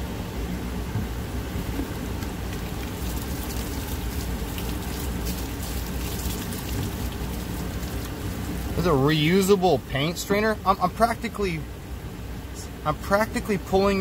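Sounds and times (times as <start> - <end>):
liquid splashing onto wet pavement: 2.2 - 8.9.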